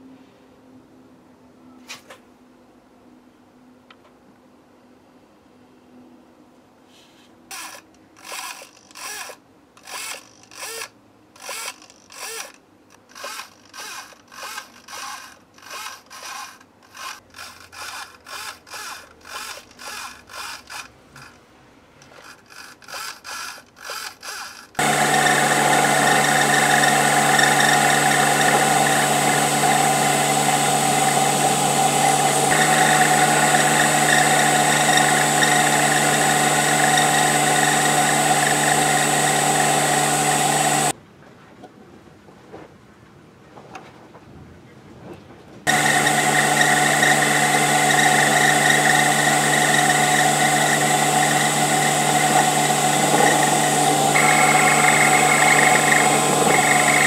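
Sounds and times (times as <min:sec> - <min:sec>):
servo buzzing: 0:07.5 - 0:21.4, 0:22.0 - 0:40.9, 0:45.7 - 0:57.0
lathe running: 0:24.8 - 0:40.9, 0:45.7 - 0:57.0.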